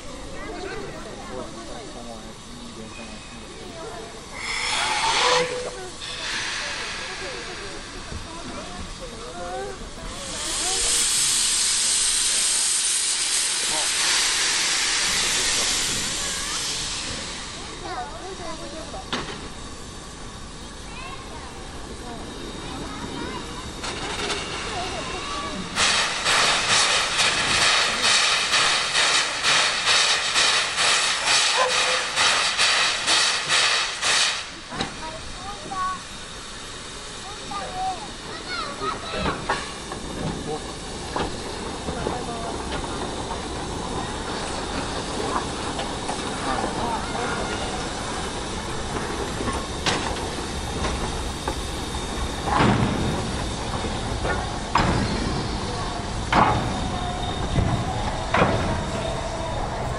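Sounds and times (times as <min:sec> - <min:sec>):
steam locomotive chuffing: 0:00.0 - 0:59.9
knocks and clanks: 0:52.5 - 0:55.5.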